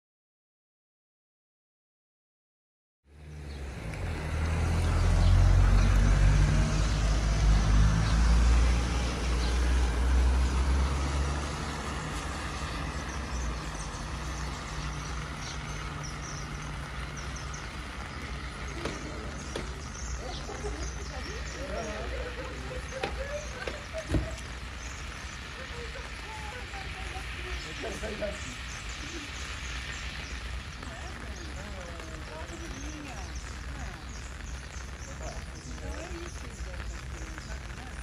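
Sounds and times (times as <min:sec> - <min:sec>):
rain hiss: 0:03.1 - 0:38.0
locomotive engines idling: 0:12.1 - 0:33.1.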